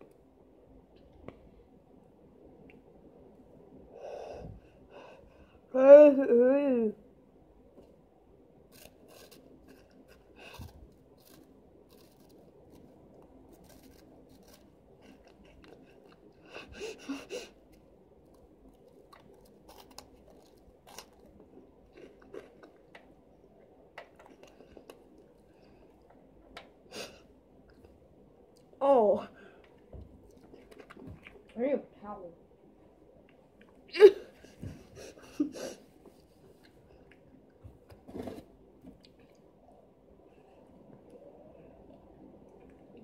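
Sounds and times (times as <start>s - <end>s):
child chewing crunchy snack: 8.6s - 26.6s, 29.6s - 31.6s.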